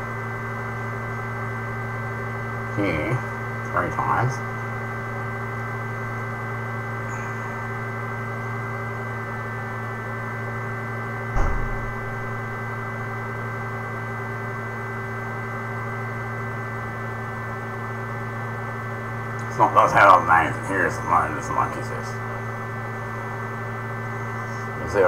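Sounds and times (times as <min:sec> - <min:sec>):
electrical hum: 0:00.0 - 0:25.0
thump: 0:11.3 - 0:12.6.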